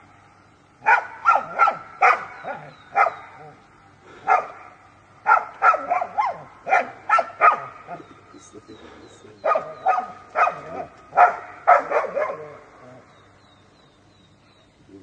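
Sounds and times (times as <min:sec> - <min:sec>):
dog barking: 0:00.8 - 0:03.6, 0:04.2 - 0:08.0, 0:09.4 - 0:13.0.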